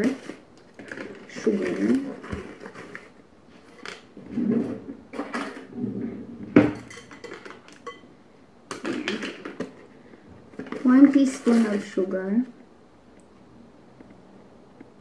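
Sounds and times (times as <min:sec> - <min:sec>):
paper bag rustling: 0:00.0 - 0:05.7
plastic spoons clacking on bowl: 0:06.6 - 0:08.1, 0:08.7 - 0:09.9.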